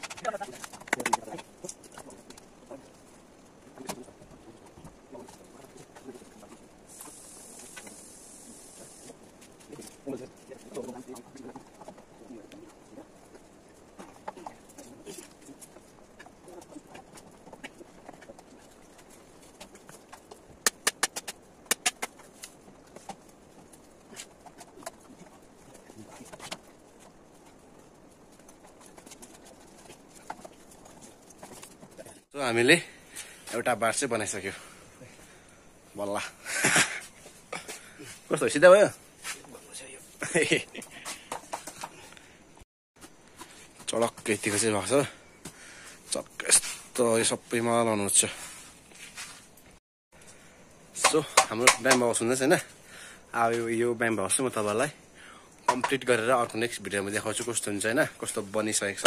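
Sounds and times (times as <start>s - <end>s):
bamboo poles and tools knocking: 0.0s - 2.4s, 15.7s - 27.1s, 41.0s - 42.0s, 51.0s - 52.2s, 55.6s - 56.0s
steady high hiss: 6.0s - 11.1s.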